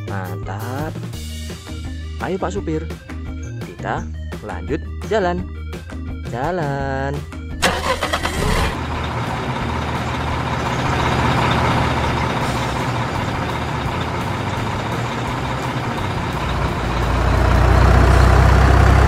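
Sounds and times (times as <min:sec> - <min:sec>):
heavy truck engine running: 0:07.5 - 0:19.0.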